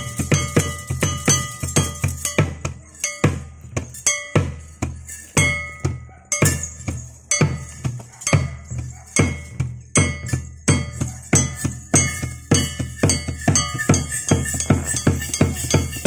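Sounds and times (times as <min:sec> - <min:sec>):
drums beating: 0:00.0 - 0:16.0
hand cymbals clashing: 0:00.0 - 0:16.0.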